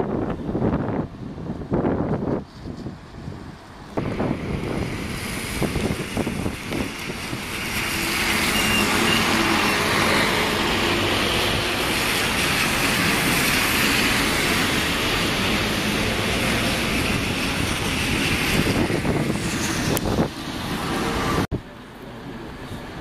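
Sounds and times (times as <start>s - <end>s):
bus engines passing: 0.0s - 23.0s
tyres hissing through water: 4.0s - 21.5s.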